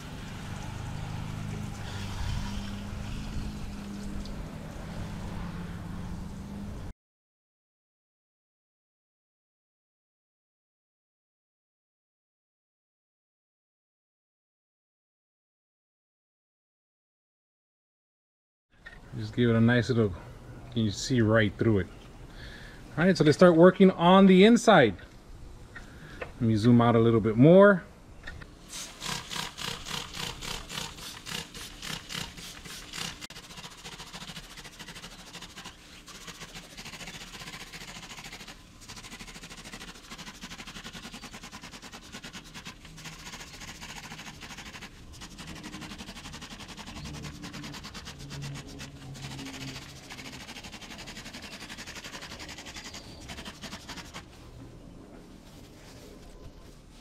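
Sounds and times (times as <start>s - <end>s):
trigger spray bottle spraying: 28.7s - 54.3s.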